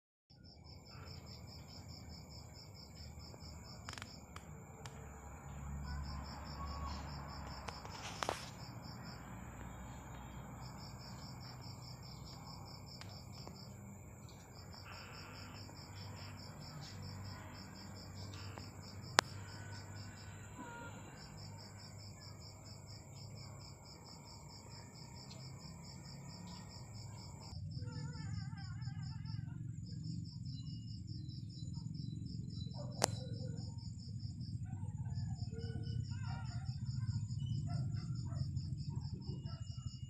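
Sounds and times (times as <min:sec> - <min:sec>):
cricket chirping: 0:00.3 - 0:40.0
sharp click: 0:33.0 - 0:33.2.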